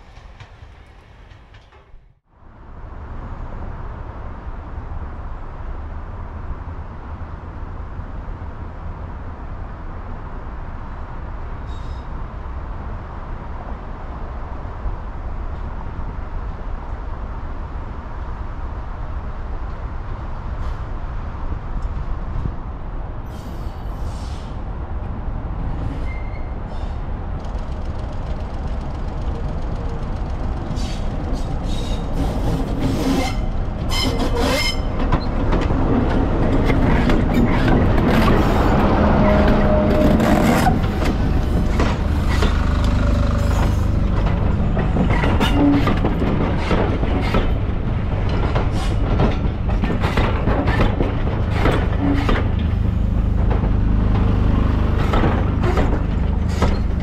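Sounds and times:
diesel locomotive rumble: 26.5 - 57.0.

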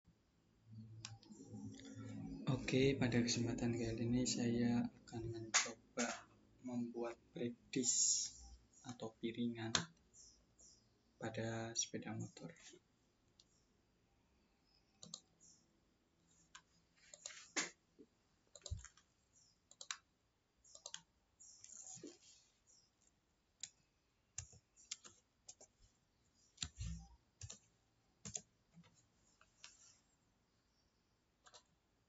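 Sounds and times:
computer mouse clicks: 1.0 - 1.9, 14.9 - 15.6, 16.4 - 17.8, 18.5 - 22.2, 23.6 - 23.8, 24.4 - 25.7, 26.4 - 27.6, 28.2 - 29.8, 31.4 - 31.7
keyboard key presses: 28.2 - 28.9.

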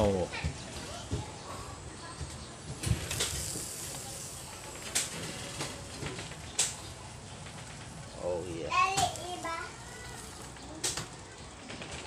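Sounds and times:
meat sizzling on a grill: 2.8 - 6.0.

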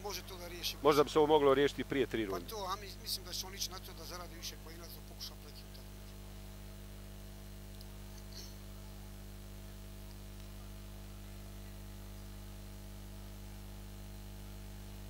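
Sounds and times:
flat hiss: 0.0 - 9.4
low electrical hum: 0.0 - 15.0.

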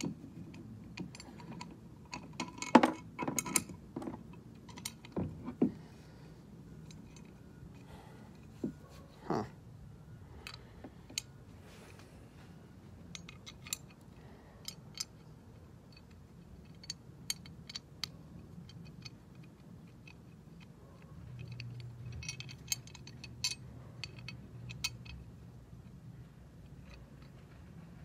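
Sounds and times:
faint low hum: 0.0 - 28.0
metallic clicks of bolts: 13.1 - 25.3.

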